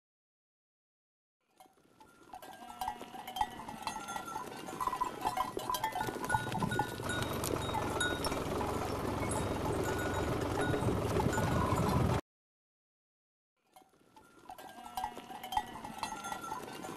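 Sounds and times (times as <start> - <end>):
livestock bells clanking: 1.6 - 12.2, 13.8 - 16.9
low rumble: 6.7 - 12.2.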